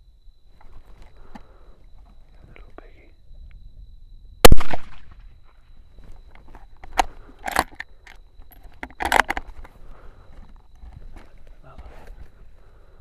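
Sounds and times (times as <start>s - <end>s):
crackling handling noises: 4.9s - 12.8s.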